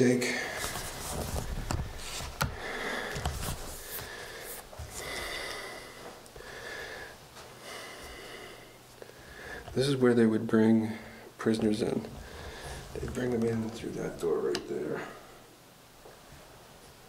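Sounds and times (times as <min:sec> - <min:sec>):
person breathing: 0:01.9 - 0:09.8, 0:10.8 - 0:11.4, 0:12.1 - 0:13.0, 0:14.9 - 0:15.5.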